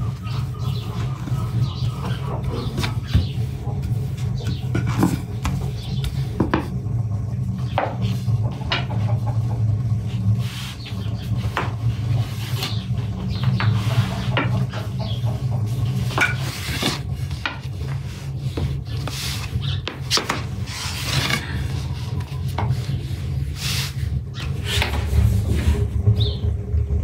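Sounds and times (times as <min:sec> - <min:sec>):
rolling pin rolling dough: 0:07.7 - 0:26.4.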